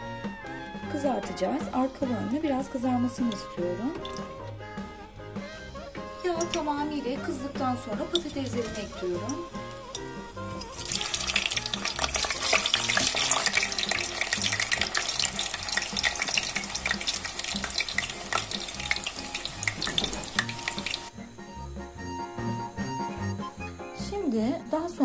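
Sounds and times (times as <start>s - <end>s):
soft background music: 0.0s - 25.0s
potatoes sizzling in hot oil: 1.0s - 4.4s, 5.4s - 21.3s.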